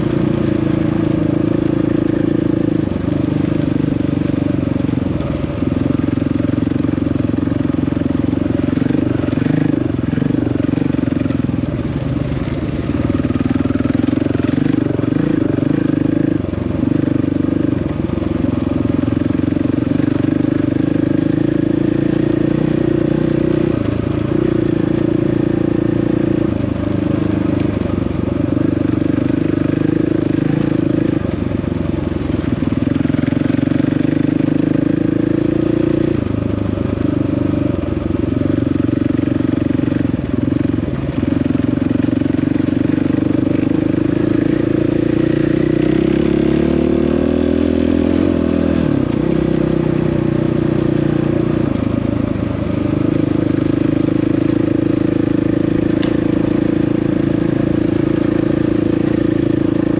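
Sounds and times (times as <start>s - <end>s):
dirt bike engine revving: 8.5s - 11.3s, 12.9s - 17.6s, 41.2s - 52.0s.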